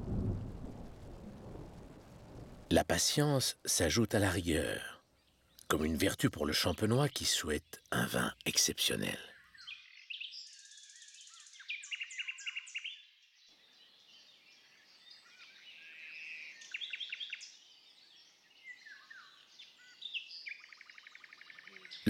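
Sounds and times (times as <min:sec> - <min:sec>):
faint steady hiss: 0:00.0 - 0:09.4
songbirds chirping: 0:02.7 - 0:22.0.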